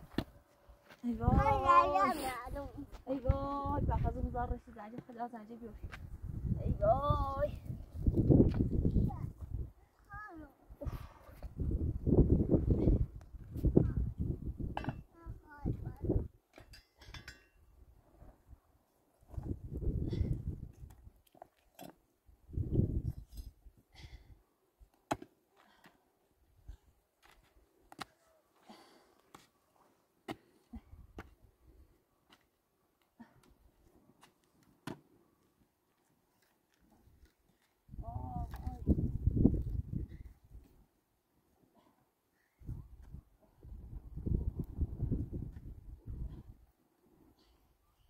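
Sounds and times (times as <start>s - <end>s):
wind buffeting microphone: 1.2s - 4.7s, 5.7s - 9.8s, 10.8s - 16.4s, 19.3s - 21.0s, 22.4s - 23.3s, 37.9s - 40.6s, 42.6s - 46.6s.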